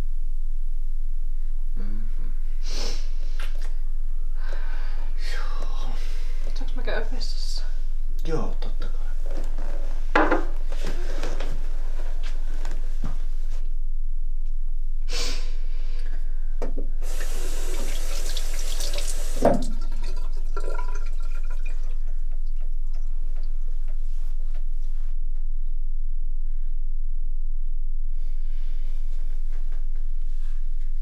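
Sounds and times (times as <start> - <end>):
steady low hum: 0.0 - 31.0
tap water rushing into basin: 17.0 - 22.0.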